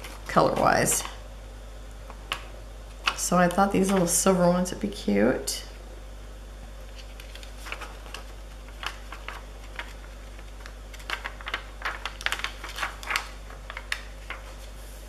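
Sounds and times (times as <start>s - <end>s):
fingernails clicking on plastic sheet: 8.8s - 14.1s.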